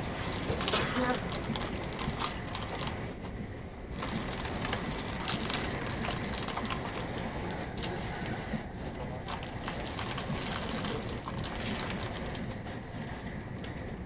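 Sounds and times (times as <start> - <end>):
electric train rumble and hiss: 0.0 - 14.0.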